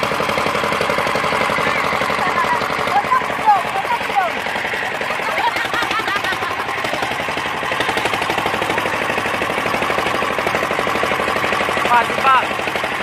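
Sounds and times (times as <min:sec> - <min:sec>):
boat engine chugging: 0:00.0 - 0:13.0.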